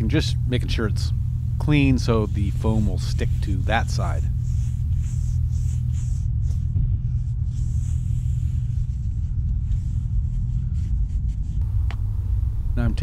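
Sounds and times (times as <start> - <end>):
low rumble: 0.0 - 13.0
rag wiping swishes: 1.6 - 6.7.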